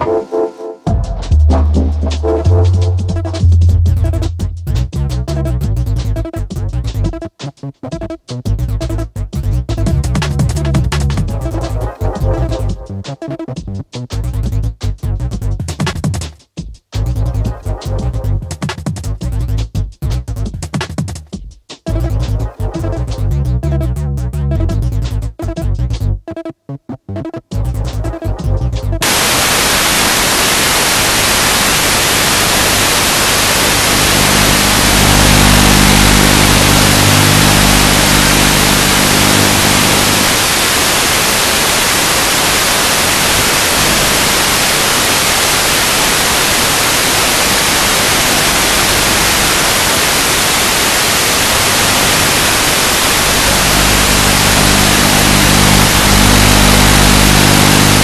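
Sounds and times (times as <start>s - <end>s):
low tonal hum: 1.3s - 5.8s, 34.2s - 40.3s
radio static hiss: 2.0s - 4.5s, 29.0s - 58.0s.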